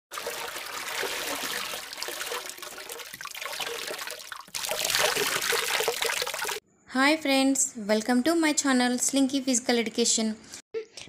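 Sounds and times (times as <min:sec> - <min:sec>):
water splashing and pouring: 0:00.1 - 0:06.6.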